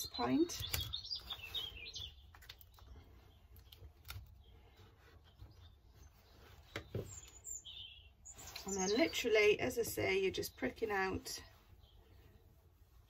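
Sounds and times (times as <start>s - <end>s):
faint taps and rustles: 3.6s - 7.6s.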